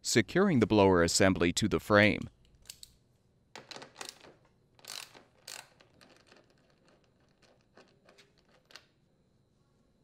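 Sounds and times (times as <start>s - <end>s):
socket wrench clicking on nuts: 4.8s - 6.0s.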